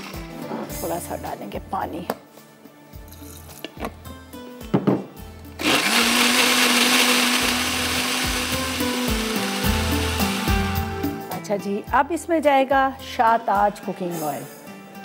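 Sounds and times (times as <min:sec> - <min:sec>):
blender running: 0:05.6 - 0:11.0.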